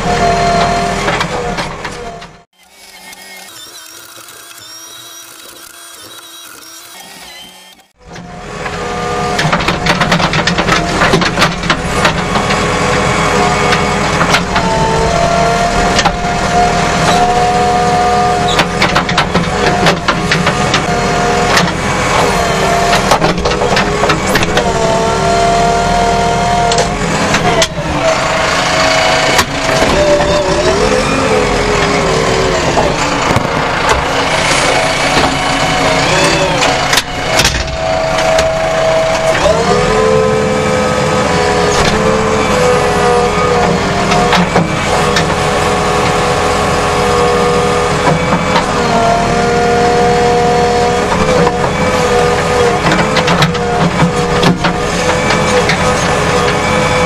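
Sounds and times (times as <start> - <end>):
diesel engine running under load: 0.0 - 57.0.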